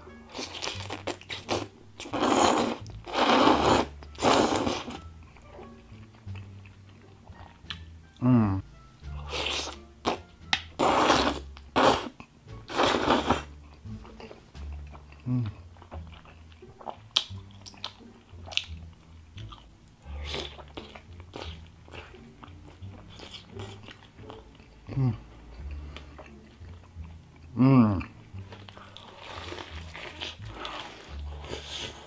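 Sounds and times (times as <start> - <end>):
slurping noodles: 0.3 - 5.0, 9.2 - 10.2, 10.8 - 13.5, 20.1 - 22.2, 28.8 - 32.0
wet chewing: 0.3 - 7.9, 9.2 - 32.0.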